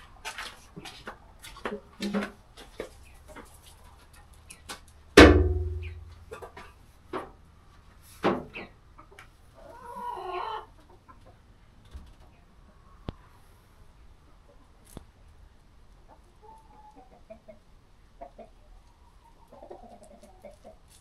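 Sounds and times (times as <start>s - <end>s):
chickens clucking: 0.2s - 4.9s, 5.7s - 21.0s
loud thump with ringing: 5.2s - 6.2s.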